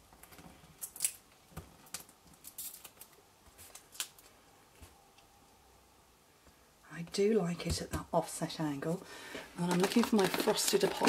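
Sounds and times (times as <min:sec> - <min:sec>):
paper and card rustling: 0:09.6 - 0:11.0.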